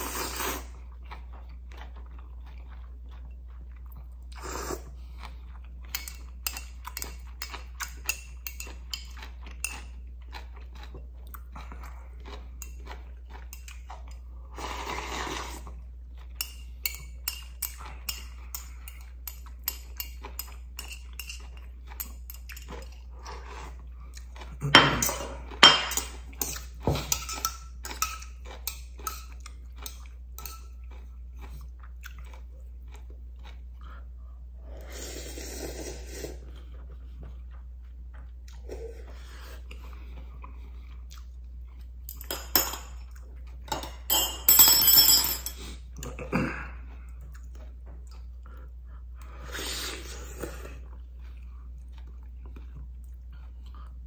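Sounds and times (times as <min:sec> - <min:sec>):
slurping noodles: 0:00.0 - 0:00.8, 0:04.3 - 0:05.0, 0:14.5 - 0:15.8, 0:34.6 - 0:36.7
close chewing: 0:00.6 - 0:34.4, 0:46.7 - 0:54.0.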